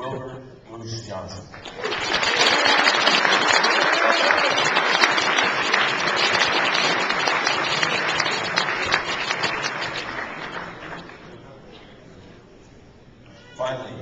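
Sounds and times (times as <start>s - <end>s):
audience applauding: 1.5s - 11.4s.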